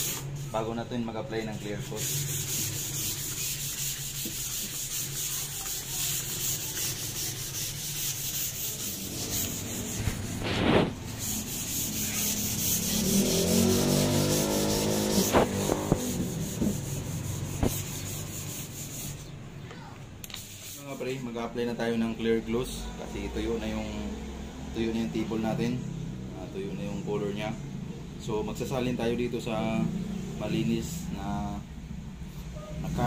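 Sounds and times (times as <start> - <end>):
sandpaper rubbing on wood: 0.0 - 0.8, 1.5 - 19.3, 20.4 - 21.3.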